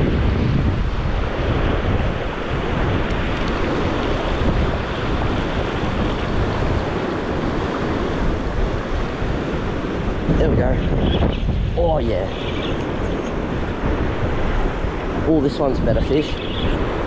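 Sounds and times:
small surf washing over sand: 0:00.0 - 0:10.8
wind buffeting microphone: 0:00.0 - 0:17.0.

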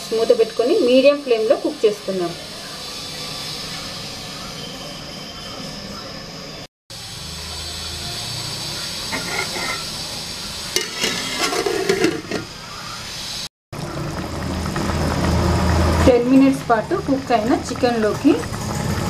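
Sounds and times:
chicken sizzling in a pot: 0:00.0 - 0:04.1, 0:06.9 - 0:19.0.

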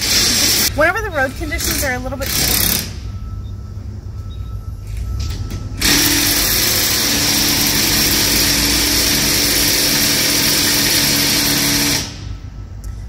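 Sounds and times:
machine hissing: 0:00.0 - 0:00.8, 0:05.8 - 0:12.4
low even hum: 0:00.1 - 0:13.0.

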